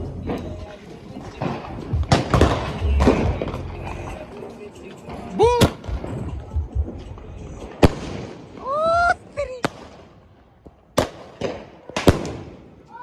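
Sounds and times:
firecracker bangs: 1.3s - 3.6s, 7.7s - 8.7s, 10.8s - 12.8s.

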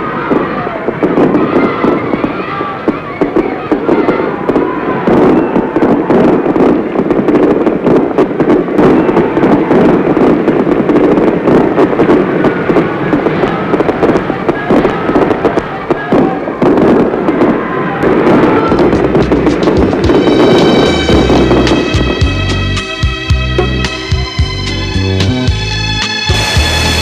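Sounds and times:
stadium crowd cheering: 0.0s - 7.1s, 11.9s - 22.5s, 26.3s - 27.0s
old film soundtrack crackle: 18.7s - 27.0s.

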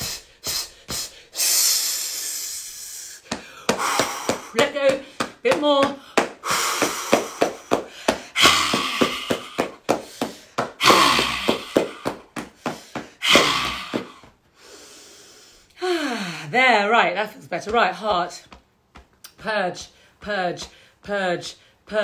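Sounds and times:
woman breathing out hard: 0.0s - 5.2s, 6.4s - 16.5s
hands thumping on chest: 3.3s - 14.3s.

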